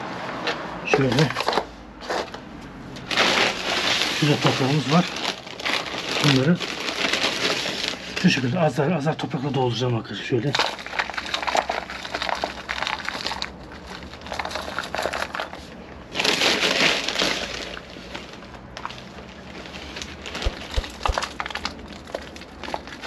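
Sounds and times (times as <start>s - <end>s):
soil rustling into plastic tray: 3.1s - 8.5s.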